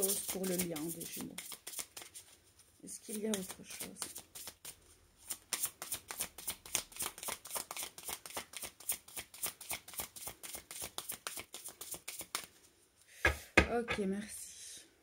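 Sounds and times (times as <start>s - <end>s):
cards being shuffled: 0.0s - 2.3s, 3.1s - 12.6s.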